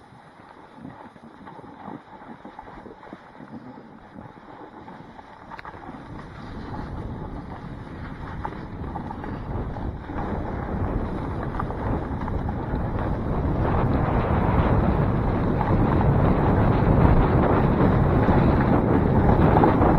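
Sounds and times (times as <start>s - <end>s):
wind buffeting microphone: 0.0s - 19.9s
snowboard scraping over snow: 5.8s - 19.9s.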